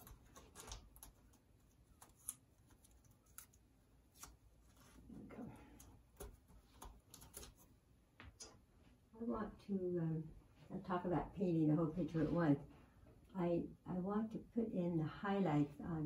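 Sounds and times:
soft rustle: 0.0 - 9.1.

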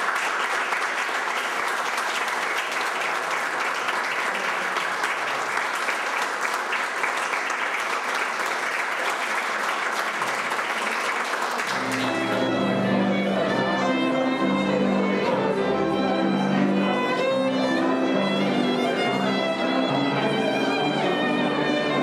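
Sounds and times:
audience applauding: 0.0 - 22.0
violin playing: 11.7 - 22.0.

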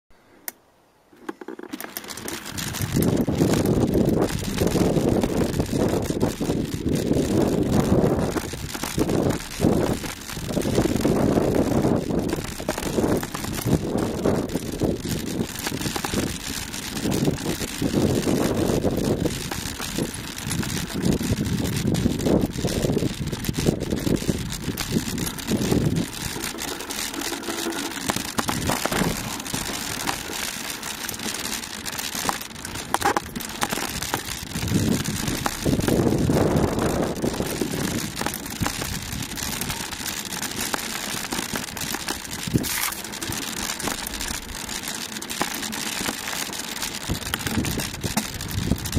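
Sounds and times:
bike rolling over rocky dirt: 1.1 - 48.9
wind buffeting microphone: 2.4 - 31.8, 32.6 - 40.2, 41.1 - 44.6, 47.0 - 48.9.

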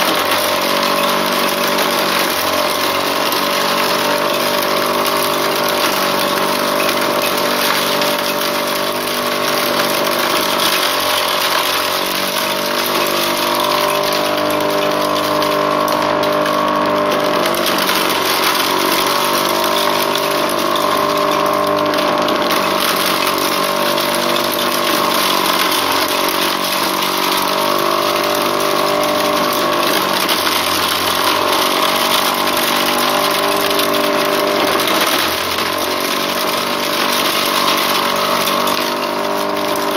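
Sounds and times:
corn sheller motor hum: 0.0 - 39.9.

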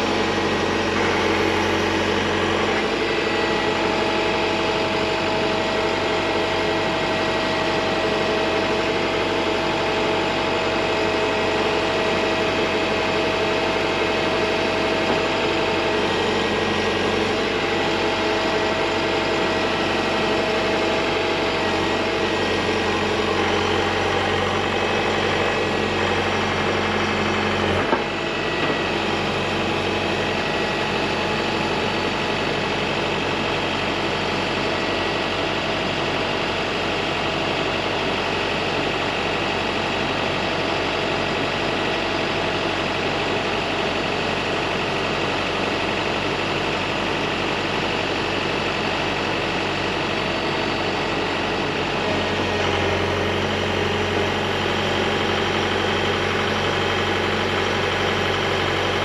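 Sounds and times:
low engine hum: 0.0 - 45.6
excavator diesel engine running: 0.0 - 59.0.

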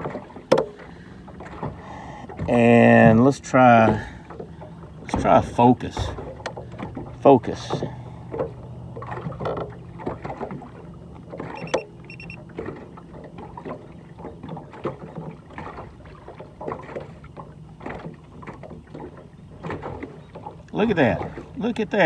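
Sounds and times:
low steady hum: 0.0 - 22.0
waves lapping against boat hull: 0.0 - 22.0
short high electronic beeps: 11.6 - 12.4.

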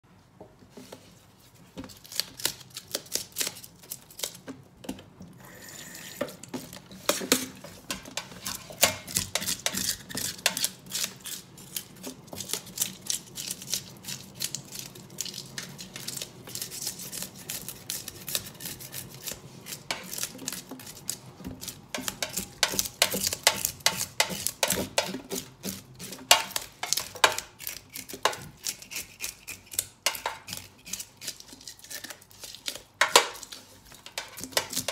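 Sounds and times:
knife scraping fish scales: 8.2 - 34.9.

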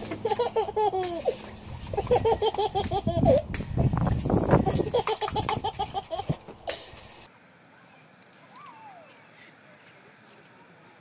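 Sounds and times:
toddler giggling: 0.0 - 3.5, 4.5 - 7.0
garden hose spraying: 0.0 - 7.3.

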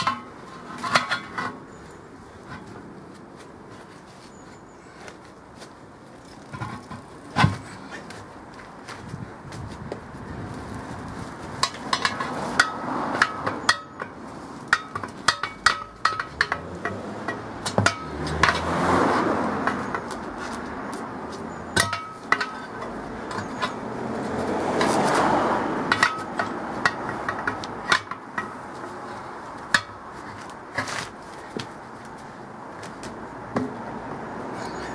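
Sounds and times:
tyre levers clinking on rim: 21.3 - 23.8.

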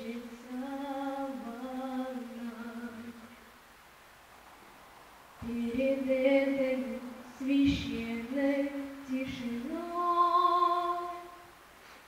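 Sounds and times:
boy singing unaccompanied: 0.0 - 3.3, 5.4 - 11.5.

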